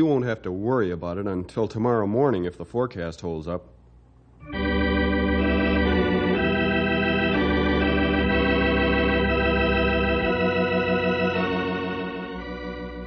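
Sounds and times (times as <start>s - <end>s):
organ chords with tremolo: 4.4s - 13.0s.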